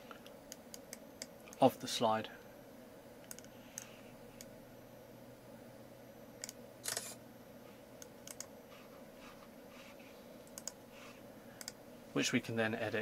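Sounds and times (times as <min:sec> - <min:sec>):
faint mouse clicks: 0:03.2 - 0:04.5, 0:10.4 - 0:10.8.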